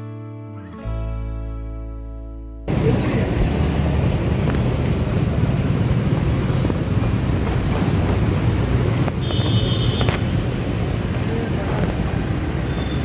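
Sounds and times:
wind buffeting microphone: 2.7s - 12.5s
street traffic noise: 2.7s - 13.0s.

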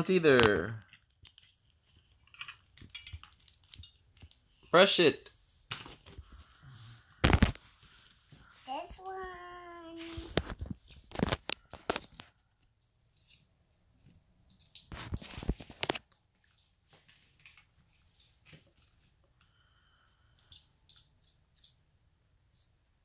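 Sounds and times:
plastic toys rustling and clicking: 0.4s - 4.6s, 9.8s - 19.4s, 20.4s - 21.8s.

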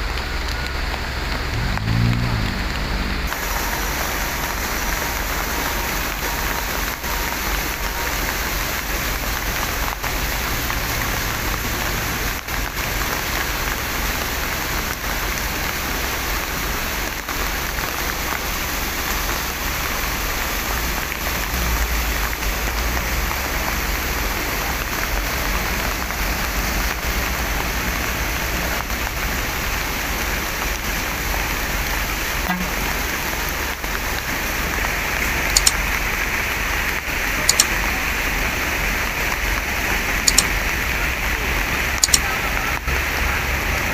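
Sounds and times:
heavy rain falling: 0.0s - 43.9s
short sharp clicks: 35.5s - 35.8s, 37.5s - 37.7s, 40.3s - 40.5s, 42.0s - 42.3s.

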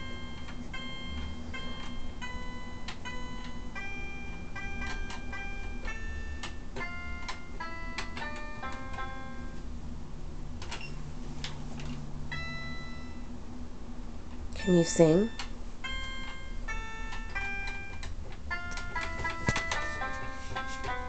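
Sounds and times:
toy piano plinky notes: 0.0s - 9.6s, 14.6s - 21.0s.

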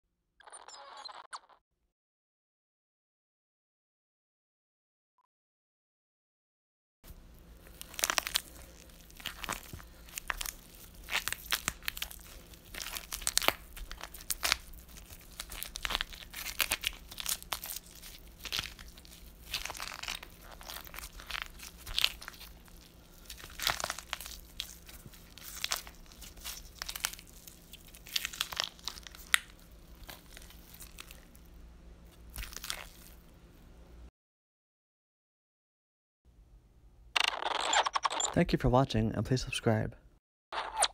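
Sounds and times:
faint low hum: 7.1s - 34.1s
crunching tearing and chewing: 7.2s - 33.3s.

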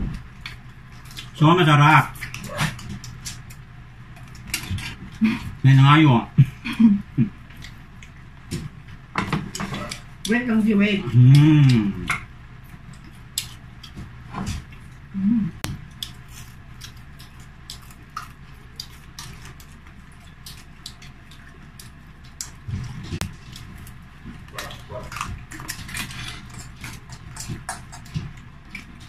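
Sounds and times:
people chewing crispy food: 0.0s - 29.0s.

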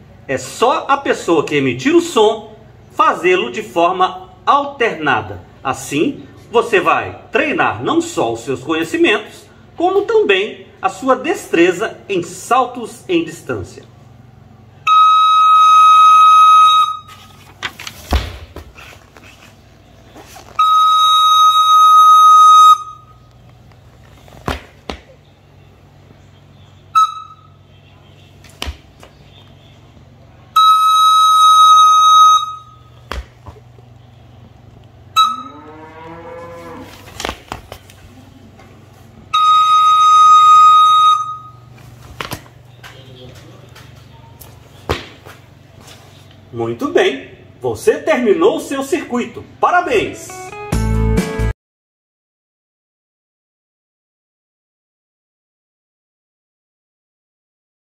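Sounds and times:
recorder playing high note: 14.8s - 17.2s, 20.6s - 23.2s, 26.9s - 27.6s, 30.6s - 32.9s, 35.2s - 36.4s, 39.3s - 41.7s, 50.0s - 51.2s
feet landing on tiled floor: 17.9s - 19.2s, 24.0s - 25.2s, 28.4s - 29.2s, 33.0s - 33.7s, 37.0s - 38.0s, 42.0s - 43.0s, 43.8s - 46.0s.

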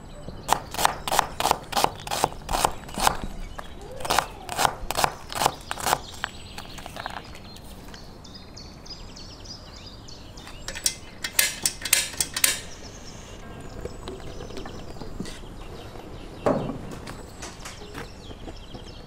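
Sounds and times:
sharp clicks and knocks: 10.5s - 12.8s.

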